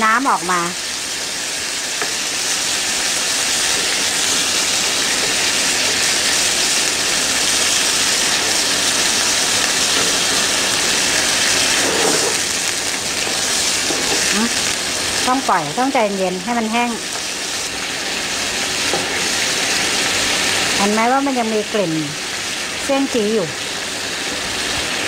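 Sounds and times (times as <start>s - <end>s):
kidneys sizzling in a frying pan: 0.0s - 25.0s.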